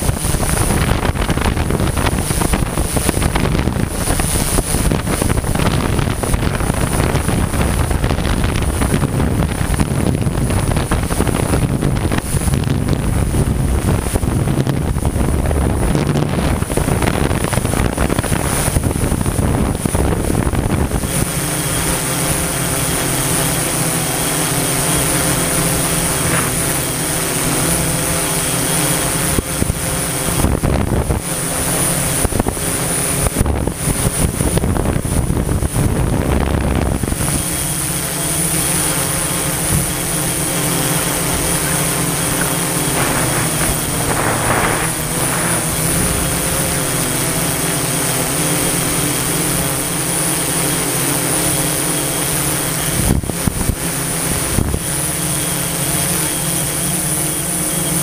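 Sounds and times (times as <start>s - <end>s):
drone propellers humming: 0.0s - 58.0s
rushing noise: 39.3s - 47.6s.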